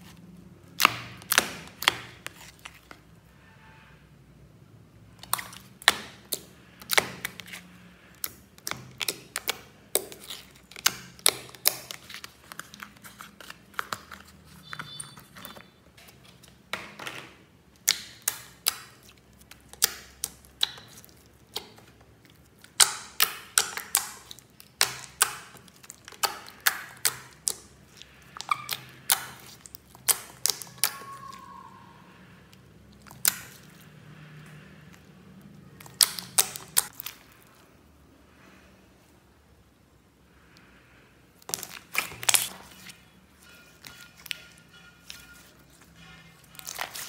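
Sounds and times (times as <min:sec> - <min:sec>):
slime popping and clicking: 0:17.8 - 0:19.0, 0:22.7 - 0:27.6, 0:28.4 - 0:31.0, 0:35.8 - 0:37.1.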